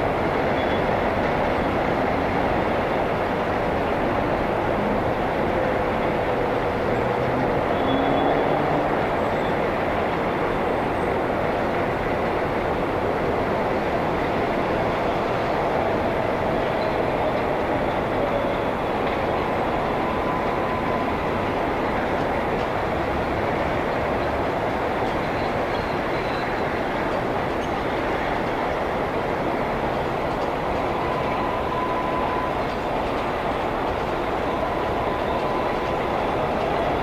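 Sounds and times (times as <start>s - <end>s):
train rumbling on steel viaduct: 0.0s - 37.0s
wheels squealing: 29.6s - 37.0s.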